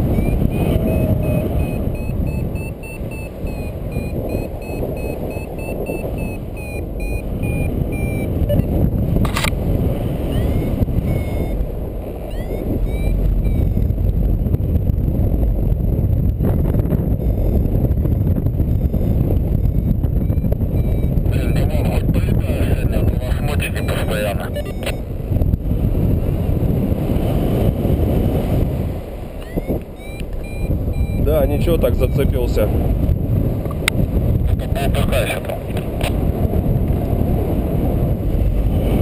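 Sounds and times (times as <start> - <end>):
variometer beeping: 0.0 - 9.6, 10.2 - 15.0, 16.2 - 25.5, 29.3 - 32.8
wind rushing over microphone: 0.0 - 39.0
sharp click: 9.2 - 9.6.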